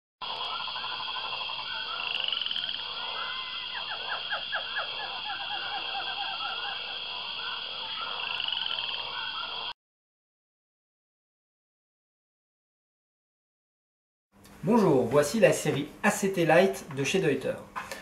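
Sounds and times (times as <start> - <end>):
short rapidly repeated animal calls: 0.2 - 9.7.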